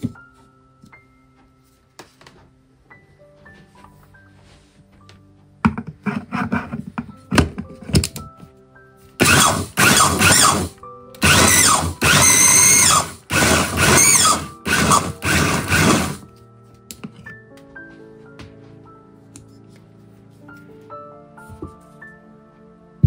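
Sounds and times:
food chopper motor grinding oats: 9.2 - 16.2.

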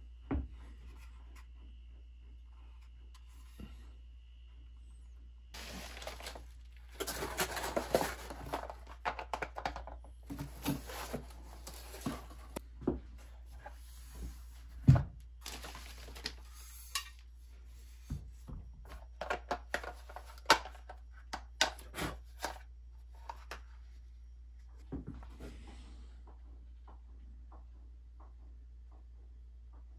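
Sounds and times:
cardboard box rustling and scraping: 5.6 - 8.9, 10.3 - 12.6.

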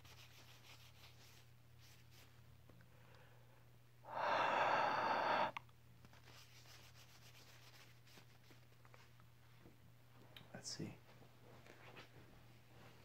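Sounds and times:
hiss of air: 4.1 - 5.6
rubbing and handling at lens: 6.0 - 9.2.

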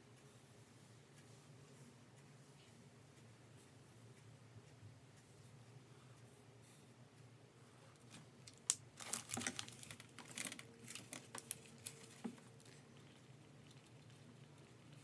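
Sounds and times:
paper rustling: 9.0 - 12.8.

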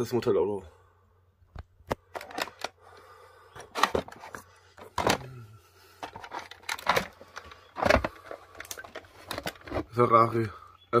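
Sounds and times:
plastic packaging clicks and knocks: 1.6 - 2.8, 3.6 - 5.3, 6.0 - 9.9.

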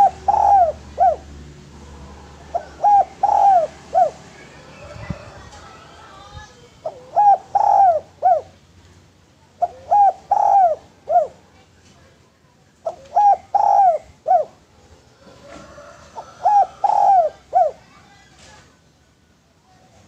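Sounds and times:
dove cooing: 0.0 - 8.6, 9.6 - 11.5, 12.8 - 14.6, 15.2 - 17.9.

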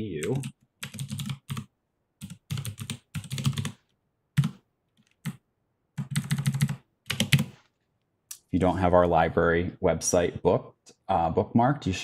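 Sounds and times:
keyboard typing: 0.2 - 5.4, 6.0 - 7.6.

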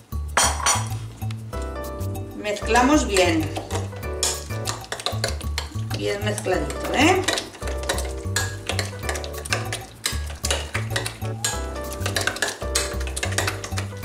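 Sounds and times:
background music with bass line: 0.0 - 14.0
fork scraping glass bowl: 6.7 - 14.0.

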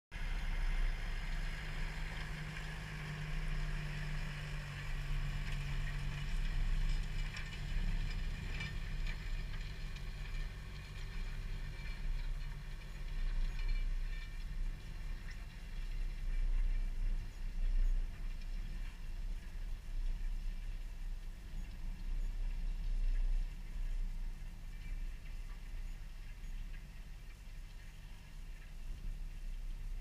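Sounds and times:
tractor engine under load: 0.2 - 22.6
low wind rumble: 0.2 - 30.0.

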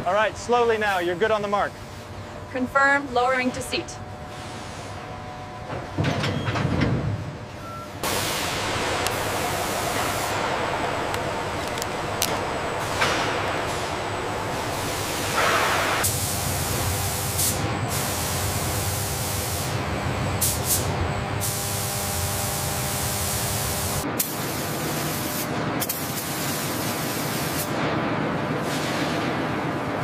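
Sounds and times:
low machinery hum: 0.0 - 24.2
paint spraying hiss: 8.0 - 19.8, 20.4 - 27.7.

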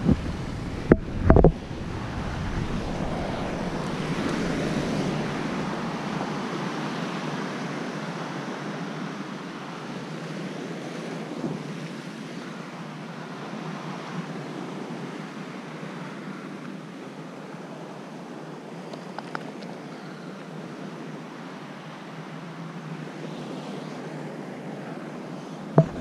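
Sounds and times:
wind on microphone: 0.0 - 7.8, 25.8 - 26.0
ocean surf on rocks: 0.0 - 19.6, 20.5 - 26.0
brief knock: 25.8 - 26.0.

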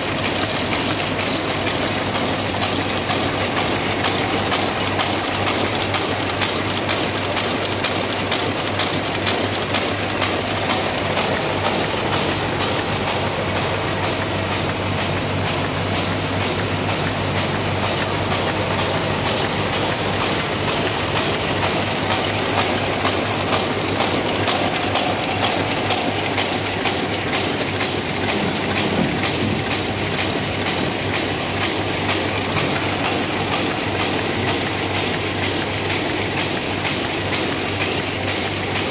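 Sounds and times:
envelope machine clattering: 0.0 - 38.9
low machine hum: 9.6 - 34.9.

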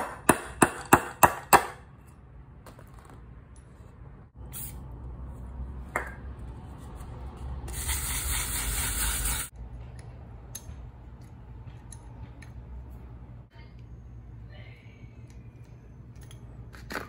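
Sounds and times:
aerosol can spraying: 7.7 - 9.5.

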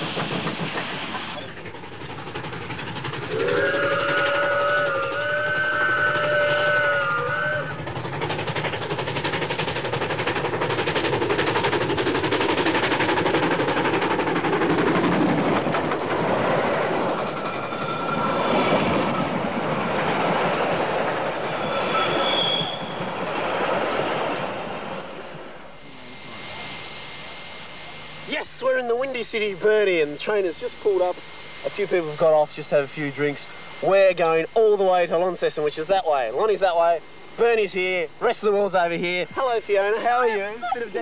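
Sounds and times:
wheels clattering over rails: 0.0 - 24.6
steam locomotive working: 0.0 - 41.0
high wheel squeals: 17.3 - 19.9, 21.4 - 23.2
steam whistle blast: 21.6 - 23.0.

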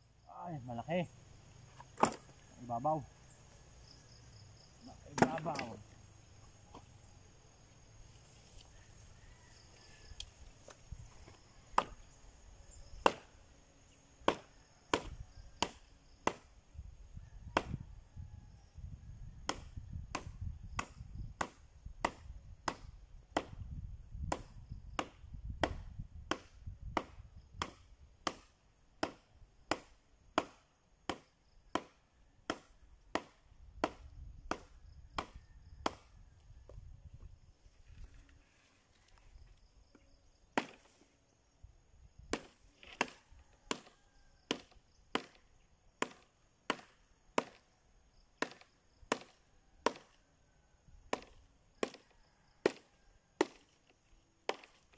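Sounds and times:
machete chopping branch: 1.7 - 2.3, 5.1 - 5.8, 10.6 - 12.0, 13.0 - 13.4, 14.2 - 16.5, 17.6 - 17.8, 19.4 - 23.6, 24.2 - 36.1, 40.6 - 41.0, 42.3 - 45.4, 46.0 - 47.7, 48.4 - 50.2, 51.1 - 54.9.

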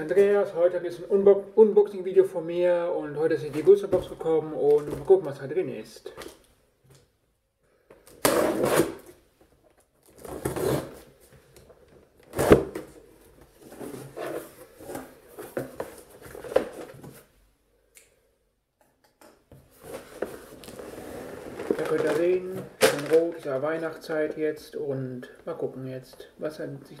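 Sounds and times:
tape tearing: 8.0 - 9.2, 10.0 - 11.1, 12.2 - 12.9, 19.9 - 23.4.

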